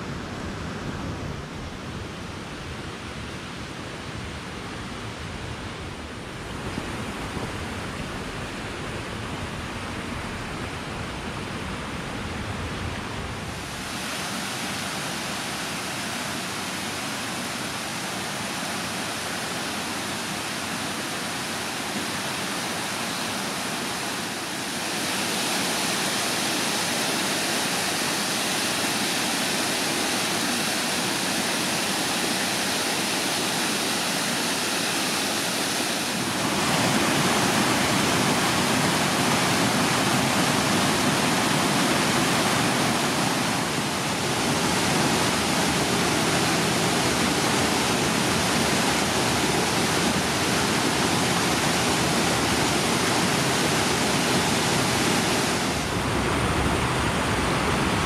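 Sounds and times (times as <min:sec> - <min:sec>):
waterfall rushing over rock: 0:13.4 - 0:58.0.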